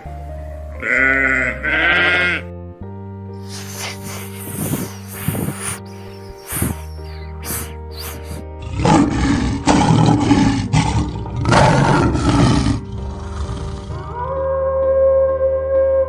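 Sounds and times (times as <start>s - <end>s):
background music: 0.0s - 16.0s
snake hissing: 3.4s - 9.3s
lion roaring: 8.6s - 14.1s.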